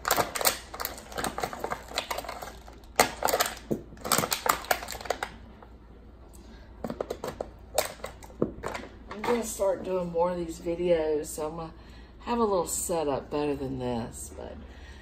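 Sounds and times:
plastic packaging clicking and crackling: 0.0s - 5.7s, 6.8s - 9.6s.

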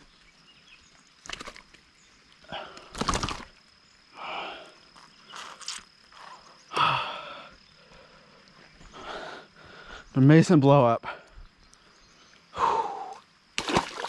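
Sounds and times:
person breathing hard: 4.1s - 4.9s, 6.7s - 10.1s, 12.5s - 13.2s.

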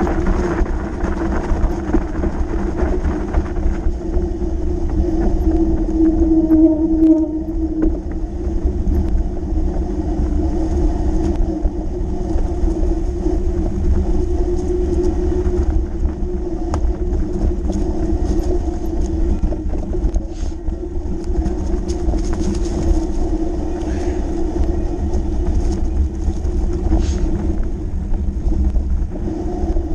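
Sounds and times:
bike clicks and rattles: 0.0s - 6.1s, 7.8s - 29.1s
bike tyres rumbling on dirt: 0.0s - 29.9s
wind buffeting microphone: 0.0s - 29.9s.

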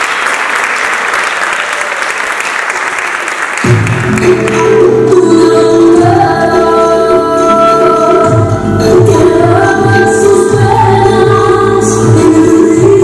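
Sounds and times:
group of voices singing: 4.6s - 13.0s.

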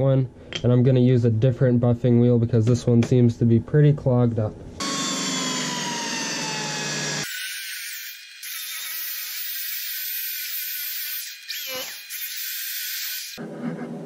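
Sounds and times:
electric drill buffing metal: 4.8s - 13.4s.

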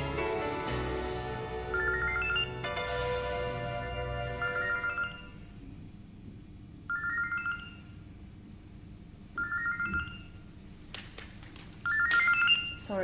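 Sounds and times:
phone ringtone trill: 1.7s - 2.6s, 3.6s - 5.4s, 9.4s - 10.3s.

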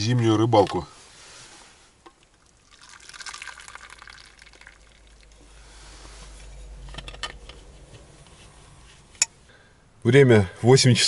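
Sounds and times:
liquid pouring into cup: 2.1s - 5.4s.

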